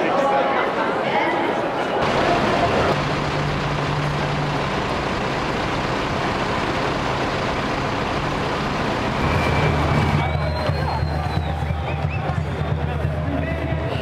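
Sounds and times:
street noise: 0.0s - 14.0s
vehicle engine humming: 2.0s - 14.0s.

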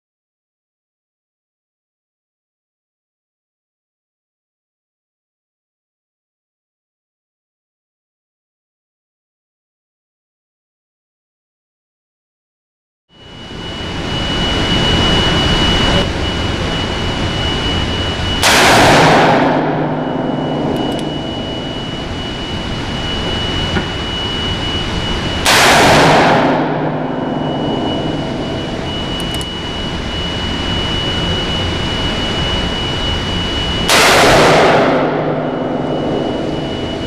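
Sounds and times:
thin high whistle: 13.2s - 18.4s, 19.5s - 25.5s, 26.1s - 33.9s, 34.8s - 37.0s
steady low hum: 13.2s - 37.0s
revolver shots echoing: 18.4s - 21.6s.

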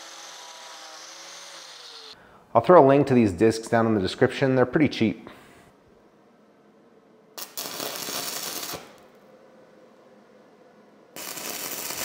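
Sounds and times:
stick welding arc crackle: 7.4s - 9.2s, 11.2s - 12.0s.

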